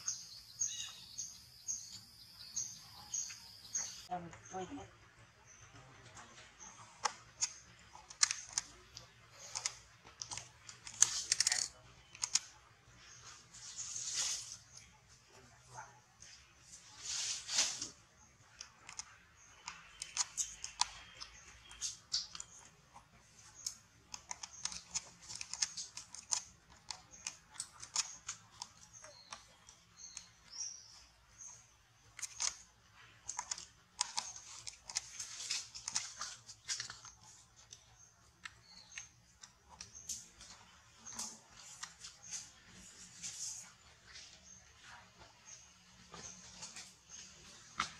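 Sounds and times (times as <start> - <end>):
monkey chewing a leaf: 6.2 - 15.3, 16.2 - 45.5.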